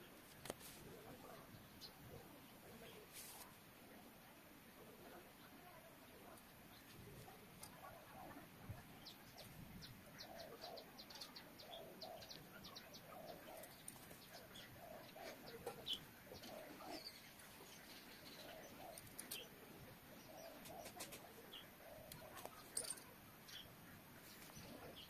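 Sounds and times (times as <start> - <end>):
low cooing bird notes: 4.8 - 25.0.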